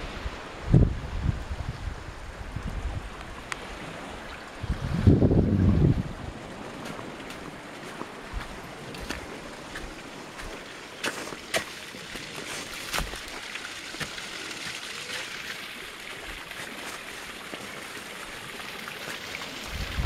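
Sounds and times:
small waterfall splashing: 0:06.2 - 0:20.0.

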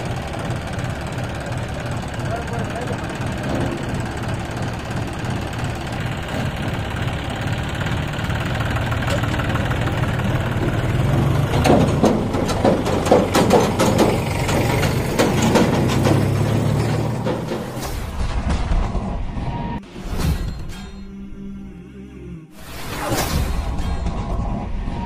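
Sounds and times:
metal clanks and rattles: 0:00.0 - 0:19.3
tractor diesel engine running: 0:00.0 - 0:19.8.

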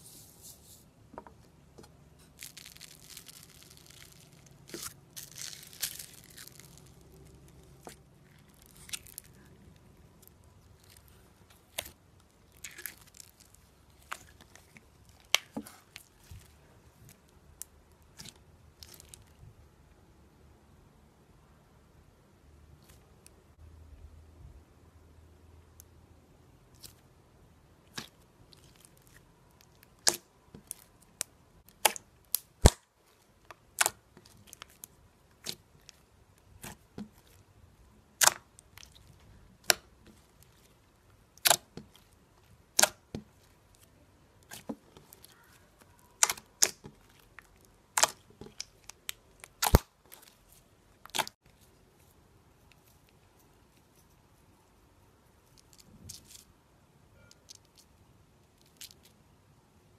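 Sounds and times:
slime popping and clicking: 0:38.2 - 0:38.8, 0:41.4 - 0:42.1, 0:42.7 - 0:43.2, 0:47.9 - 0:49.9.

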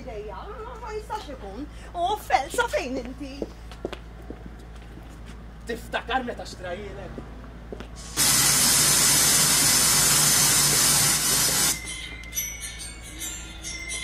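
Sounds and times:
loud steady hiss: 0:08.0 - 0:11.9.

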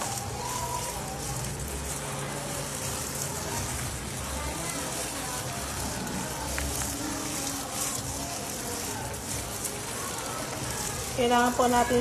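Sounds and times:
gloved hand squishing meat: 0:00.0 - 0:12.0.

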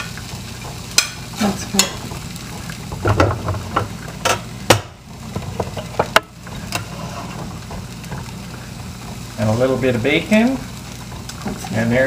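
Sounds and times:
utensil scraping on skillet and plate: 0:05.3 - 0:12.0.

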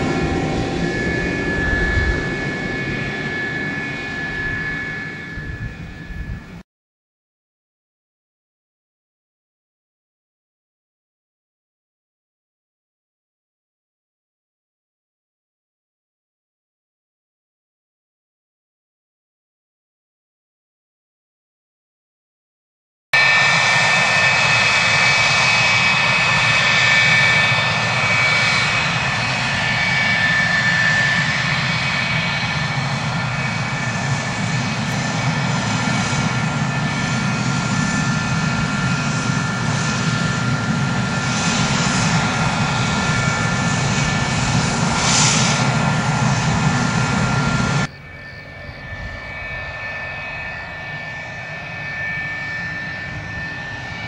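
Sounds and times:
jet engine rushing with whine: 0:00.0 - 0:06.6, 0:23.2 - 0:54.0.

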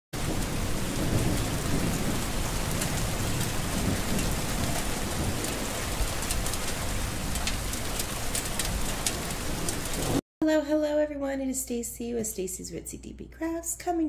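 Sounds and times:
heavy rain: 0:00.2 - 0:10.2
thunder rumbling: 0:00.2 - 0:10.2.

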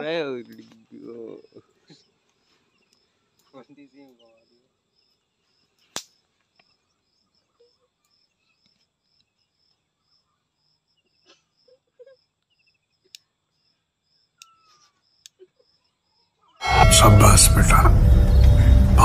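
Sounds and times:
cricket chirping faintly: 0:00.0 - 0:16.7
faint ticks: 0:02.2 - 0:04.2, 0:12.4 - 0:13.3.

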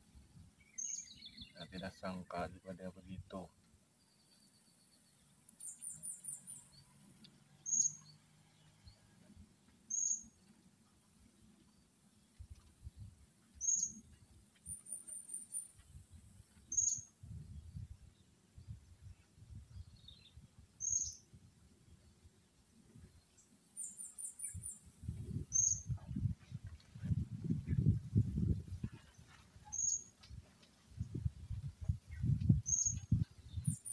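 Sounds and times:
bird fast high twitters: 0:07.6 - 0:08.1, 0:25.5 - 0:26.0, 0:29.0 - 0:30.1.

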